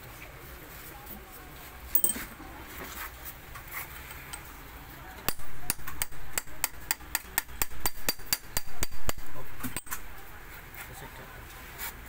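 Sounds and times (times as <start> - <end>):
metal parts clinking: 2.0 - 2.3.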